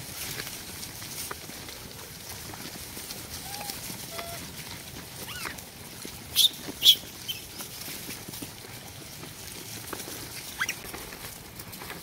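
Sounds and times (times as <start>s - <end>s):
monkey chirps: 3.4s - 4.4s, 5.3s - 5.6s, 6.3s - 7.5s, 10.6s - 10.8s
monkey shrieks: 3.4s - 4.4s, 5.3s - 5.6s, 10.6s - 10.8s.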